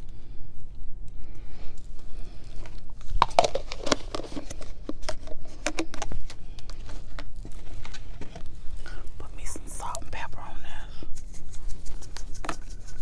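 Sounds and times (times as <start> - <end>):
plastic container crinkling: 2.6 - 8.4.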